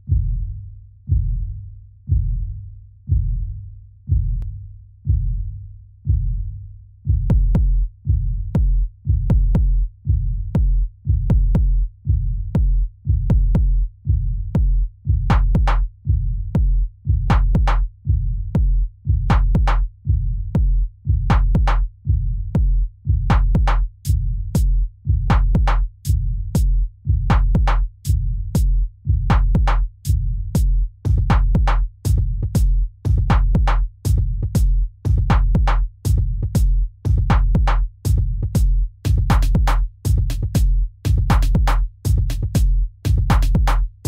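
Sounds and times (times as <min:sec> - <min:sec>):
deep bass hits with clicks: 0:07.1 - 0:11.8, 0:12.5 - 0:13.8, 0:14.5 - 0:15.9, 0:16.5 - 0:17.9, 0:18.5 - 0:19.9, 0:20.5 - 0:21.9, 0:22.5 - 0:43.9
drum machine beat: 0:07.1 - 0:44.0.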